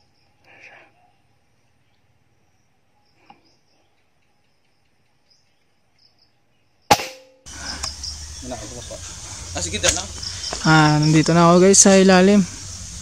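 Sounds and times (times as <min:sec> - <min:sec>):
faint insect chirping: 0:00.0 - 0:13.0
air rifle shot: 0:06.9 - 0:07.4.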